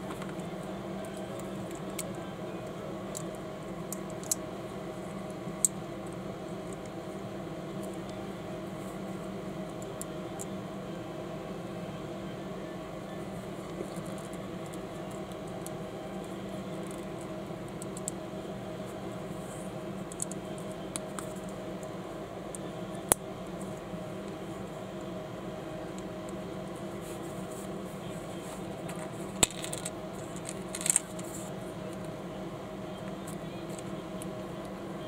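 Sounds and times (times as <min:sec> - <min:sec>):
room noise hum: 0:00.0 - 0:35.0
plastic bricks clicking: 0:29.4 - 0:31.2.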